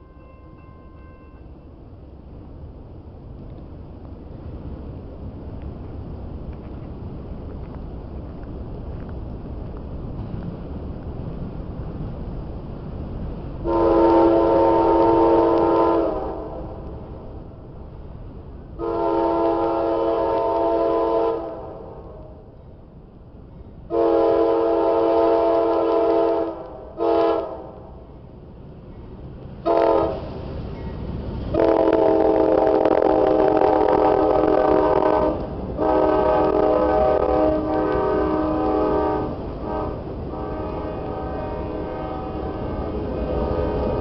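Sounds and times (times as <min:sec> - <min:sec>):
rumble of rolling freight train: 0:00.0 - 0:44.0
locomotive air horn blasts: 0:13.6 - 0:16.7, 0:18.8 - 0:22.2, 0:23.9 - 0:27.7, 0:29.6 - 0:30.3, 0:31.5 - 0:44.0.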